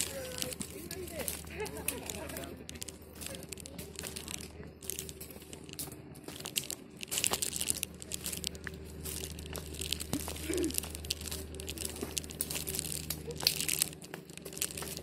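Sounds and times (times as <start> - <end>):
footsteps crunching on dry leaves: 0.0 - 15.0
grass stalks brushing: 0.0 - 15.0.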